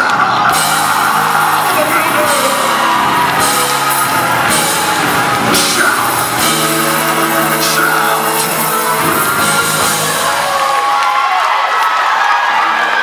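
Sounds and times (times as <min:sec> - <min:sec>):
electric bass: 0:00.0 - 0:10.8
held keyboard chords: 0:00.0 - 0:11.2
drum kit with cymbal crashes: 0:00.5 - 0:10.9.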